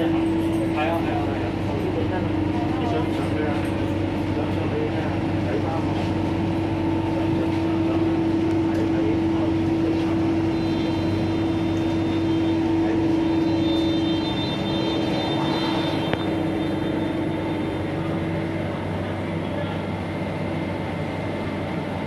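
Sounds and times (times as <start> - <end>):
train humming: 0.0 - 22.0
thin high electronic tone: 10.4 - 18.4.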